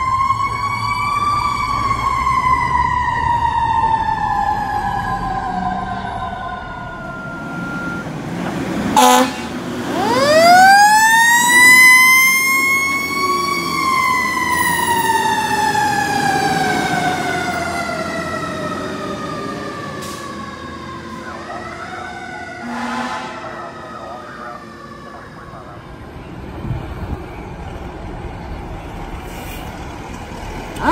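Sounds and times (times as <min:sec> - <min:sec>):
fire engine siren winding: 0:00.0 - 0:08.2, 0:09.0 - 0:25.8
horn blast: 0:09.0 - 0:09.7, 0:22.5 - 0:24.5.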